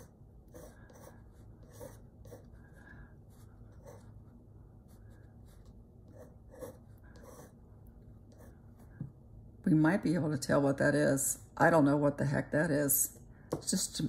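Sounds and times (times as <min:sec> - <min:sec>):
pencil scratching on paper: 0:00.0 - 0:07.6, 0:08.3 - 0:09.0.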